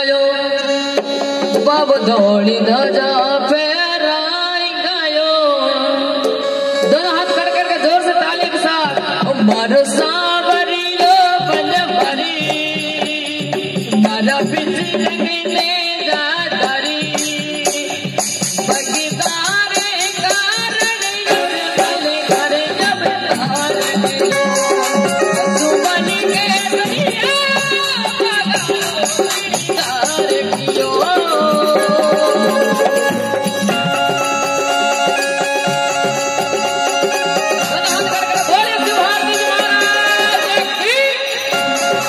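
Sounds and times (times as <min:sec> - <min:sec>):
devotional song melody: 0:00.0 - 0:42.0
hand drum strokes: 0:16.7 - 0:42.0
person singing wavering melody: 0:21.3 - 0:42.0
harmonium drone: 0:31.6 - 0:42.0.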